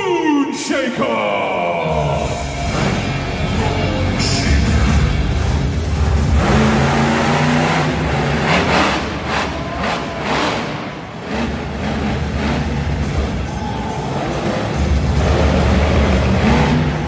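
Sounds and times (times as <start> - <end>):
monster truck engine revving: 1.8 - 17.0.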